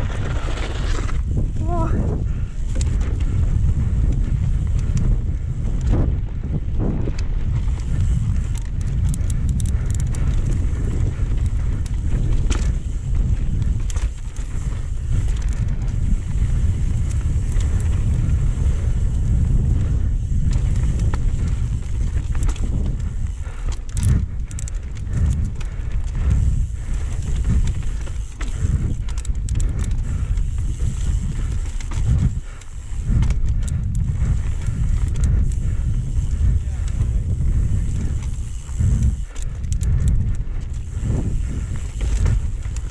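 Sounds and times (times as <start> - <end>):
bike clicks and rattles: 0.0 - 42.9
wind buffeting microphone: 0.0 - 42.9.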